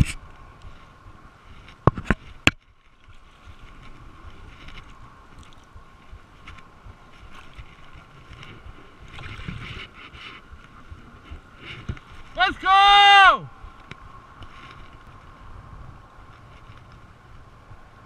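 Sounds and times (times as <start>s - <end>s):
wind on microphone: 0.0s - 12.7s, 13.4s - 18.0s
water sloshing: 1.5s - 12.4s.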